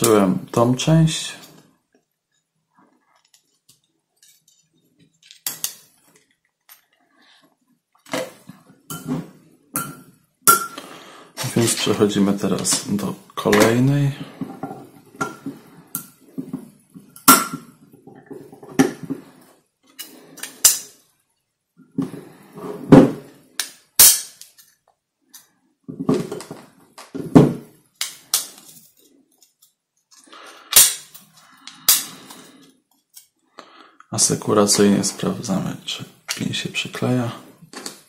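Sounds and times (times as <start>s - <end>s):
plastic parts clicking and clattering: 3.1s - 7.0s.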